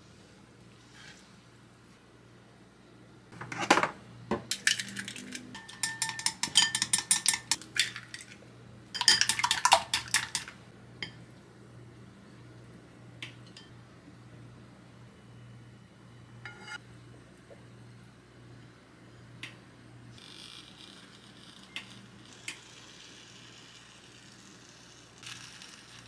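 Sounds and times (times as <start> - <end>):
dishes and utensils clinking: 3.4 - 8.4, 9.0 - 11.2, 16.4 - 16.8.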